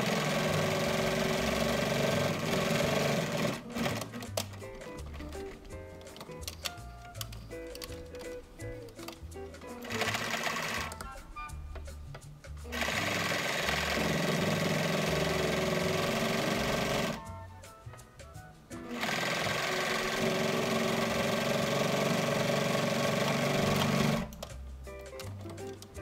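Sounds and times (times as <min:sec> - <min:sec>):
electric sewing machine stitching: 0:00.0 - 0:05.6, 0:09.7 - 0:11.0, 0:12.6 - 0:17.3, 0:18.8 - 0:24.4
background music: 0:00.0 - 0:26.0.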